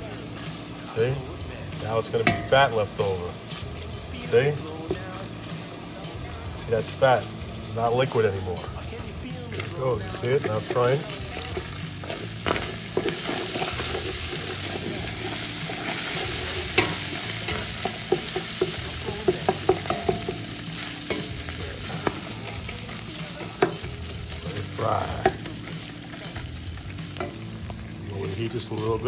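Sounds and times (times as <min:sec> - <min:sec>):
meat sizzling in a pot: 0:00.0 - 0:29.0
spoon knocking against pot: 0:16.8 - 0:20.5.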